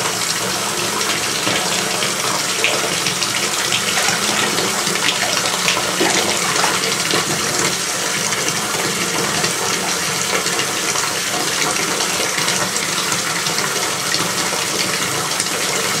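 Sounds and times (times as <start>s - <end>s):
water rushing in a bathtub: 0.0s - 16.0s
small splashes from cats wading: 3.6s - 7.6s.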